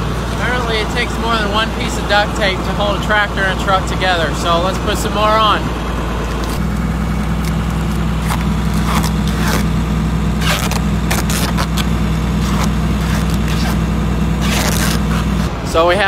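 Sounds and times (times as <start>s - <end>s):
diesel engine idling: 0.0s - 16.0s
duct tape ripping off roll: 7.3s - 9.8s, 10.4s - 15.5s.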